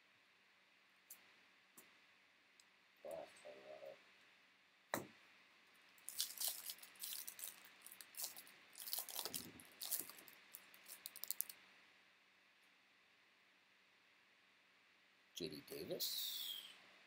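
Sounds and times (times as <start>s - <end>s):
cards crackling and rustling: 6.0s - 11.6s.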